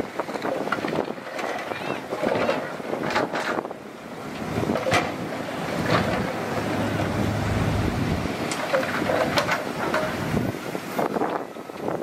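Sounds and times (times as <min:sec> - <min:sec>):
wind noise on microphone: 0:00.0 - 0:12.0
diesel machinery rumbling: 0:03.9 - 0:10.6.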